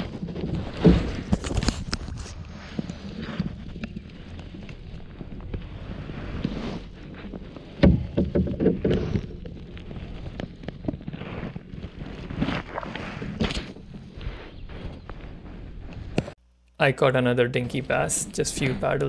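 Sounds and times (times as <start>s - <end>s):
paddle strokes swishing in water: 0.0s - 15.5s
knocks and rattles: 7.6s - 11.0s.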